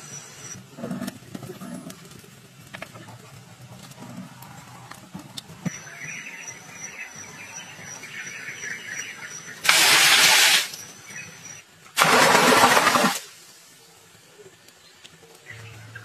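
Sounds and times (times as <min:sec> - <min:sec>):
water pouring and splashing: 0:09.6 - 0:10.8, 0:12.0 - 0:13.7.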